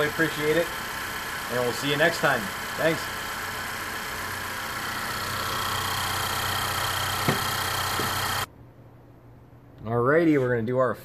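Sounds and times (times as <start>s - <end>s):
car engine idling: 0.0s - 8.5s.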